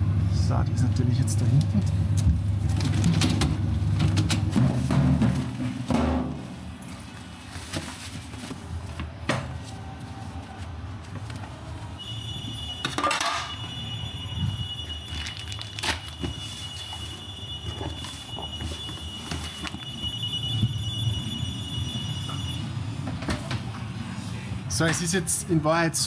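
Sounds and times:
steady high electronic tone: 19.8 - 22.7.

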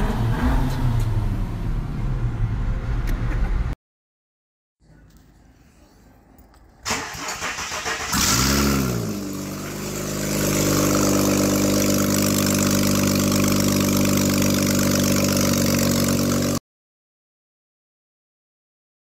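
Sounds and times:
car engine starting and idling: 5.1 - 16.6.

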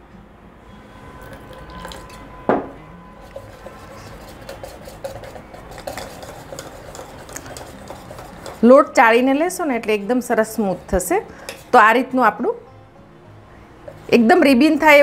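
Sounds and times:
wire whisk scraping metal bowl: 3.2 - 9.4.

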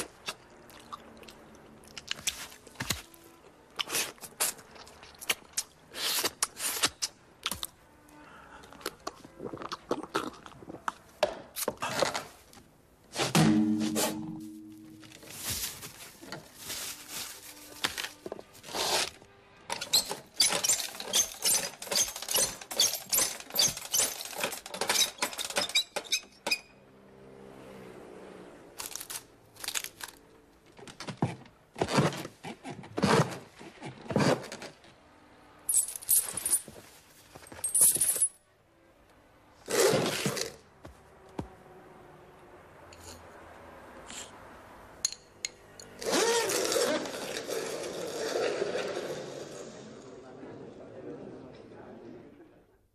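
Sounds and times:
sharp clicks clinks and scrapes: 19.8 - 26.6.

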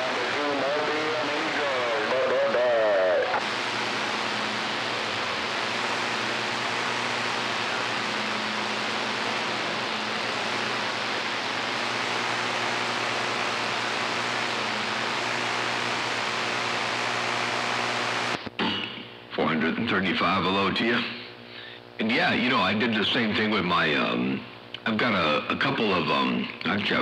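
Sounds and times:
person speaking over radio: 0.0 - 3.4
radio static hiss: 0.0 - 27.0.

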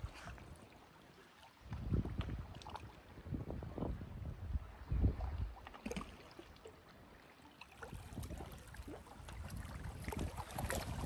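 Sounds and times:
wind rumble on microphone: 1.6 - 6.0, 7.8 - 11.0
small waves lapping on rocks: 5.4 - 11.0.

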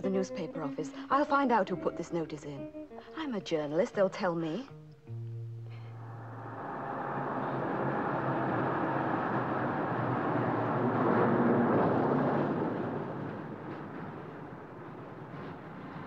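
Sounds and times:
car engine passing: 5.7 - 15.9.

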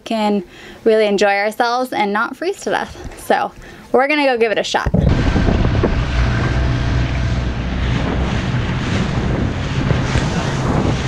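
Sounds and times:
wind rushing over microphone: 4.8 - 11.0
outboard motor drone: 4.9 - 11.0.

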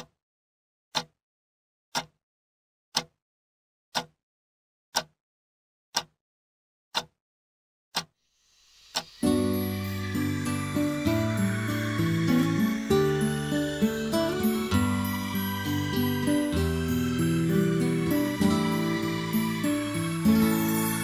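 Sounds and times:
clock ticking: 0.9 - 1.2, 1.9 - 2.2, 2.9 - 3.2, 3.9 - 4.2, 4.9 - 5.2, 5.9 - 6.2, 6.9 - 7.2, 7.9 - 8.2, 8.9 - 21.0
rising hiss: 8.3 - 21.0
music: 8.4 - 21.0.

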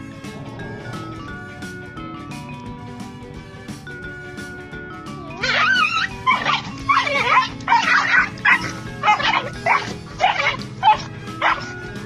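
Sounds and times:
background music: 0.0 - 12.0
dog yelping and whining: 5.4 - 11.8.

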